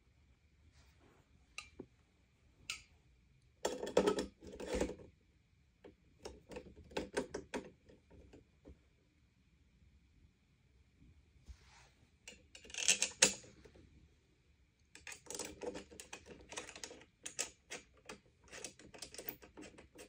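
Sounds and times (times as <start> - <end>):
vacuum parts rattling and clicking: 15.0 - 20.0.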